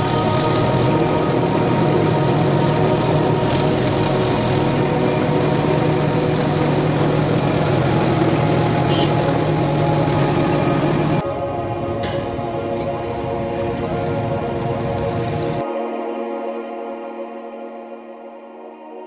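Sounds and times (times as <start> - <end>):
juice crusher motor humming: 0.0 - 11.2.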